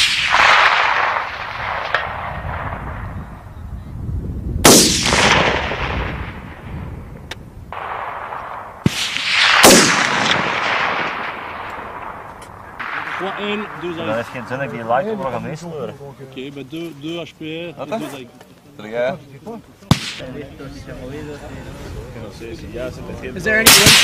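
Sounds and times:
rifle shots echoing: 0:00.0 - 0:03.4, 0:04.6 - 0:07.0, 0:07.7 - 0:15.2, 0:19.9 - 0:20.3, 0:23.6 - 0:24.0.

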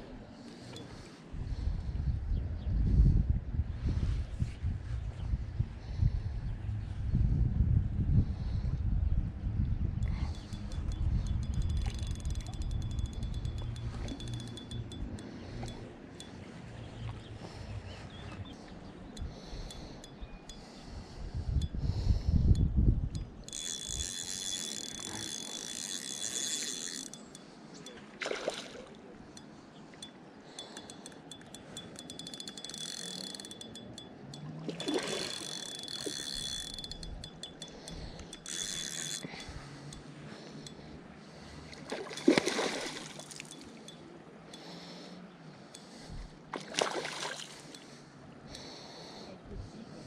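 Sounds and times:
fishing reel whirring: 0:10.0 - 0:16.4, 0:18.7 - 0:28.0, 0:29.3 - 0:44.8.

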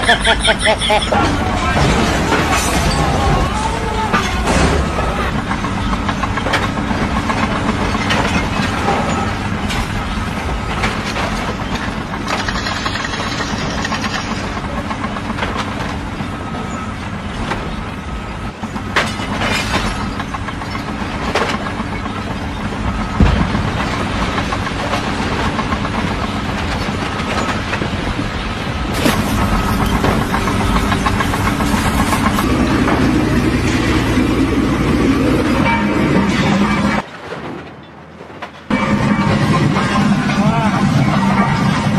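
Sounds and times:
diesel machinery running: 0:00.0 - 0:41.9
sharp knocks and clatter: 0:04.1 - 0:33.9.

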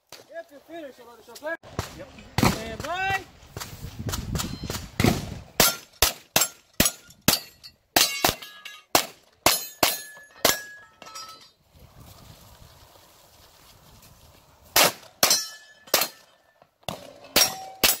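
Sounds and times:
steel targets ringing: 0:05.6 - 0:11.6, 0:15.2 - 0:16.5, 0:17.1 - 0:18.0.

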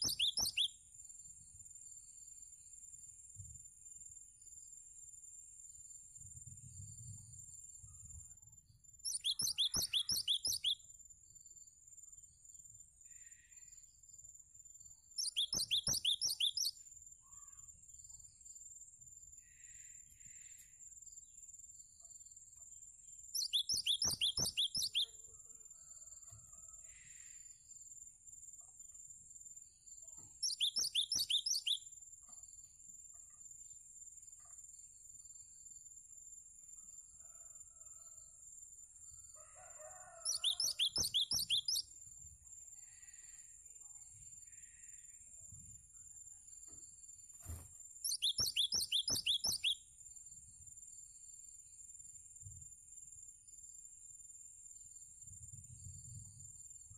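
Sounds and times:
bird singing sharp repeated notes: 0:00.0 - 0:00.8, 0:09.1 - 0:10.8, 0:15.2 - 0:16.8, 0:23.4 - 0:25.2, 0:30.3 - 0:31.9, 0:40.3 - 0:41.8, 0:48.0 - 0:49.8
faint chirps: 0:00.0 - 0:04.8, 0:05.5 - 0:35.8, 0:39.8 - 0:51.7.

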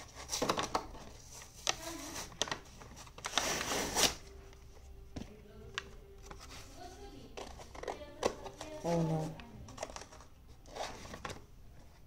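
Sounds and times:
packaging crackling and tearing: 0:00.1 - 0:04.3.

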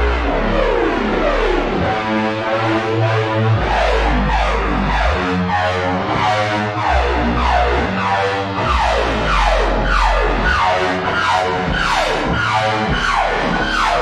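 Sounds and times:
deep synth bass note: 0:08.6 - 0:14.0.

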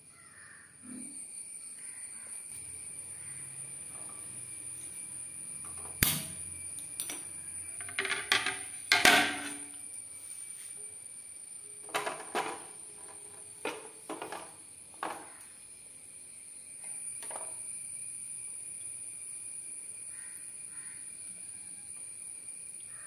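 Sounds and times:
gas burner lighting click: 0:05.9 - 0:07.2
metal pan clattering on grate: 0:07.8 - 0:09.8, 0:11.9 - 0:12.7.

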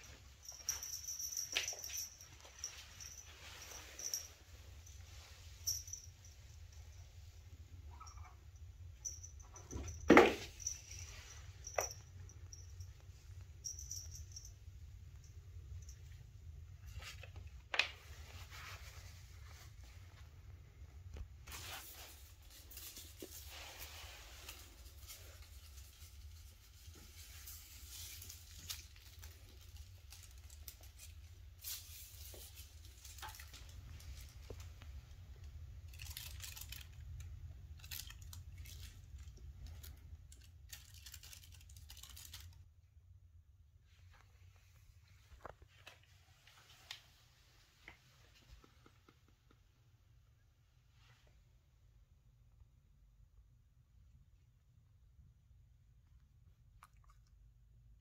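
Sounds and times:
foil tinsel rustling and crackling: 0:00.0 - 0:04.5, 0:21.4 - 0:34.5, 0:35.9 - 0:37.1, 0:37.8 - 0:42.6.

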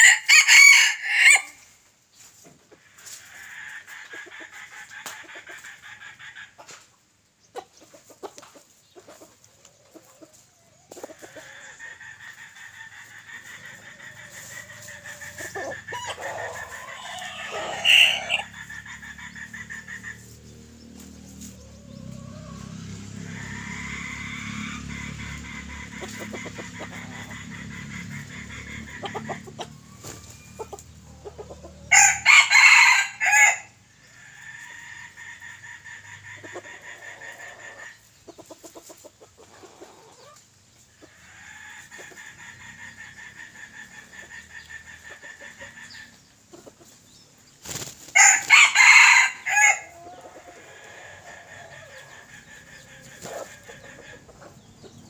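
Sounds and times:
rooster crowing: 0:00.0 - 0:01.6, 0:15.6 - 0:18.6, 0:22.0 - 0:25.4, 0:31.9 - 0:33.8, 0:48.1 - 0:52.1.

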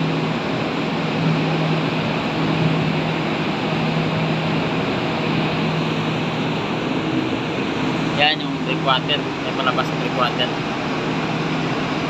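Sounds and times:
ship machinery droning: 0:00.0 - 0:12.0.

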